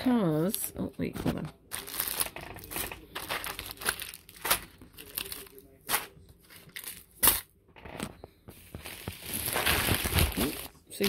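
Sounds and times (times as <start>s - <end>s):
plastic packets crinkling: 1.6s - 7.5s, 8.6s - 11.0s.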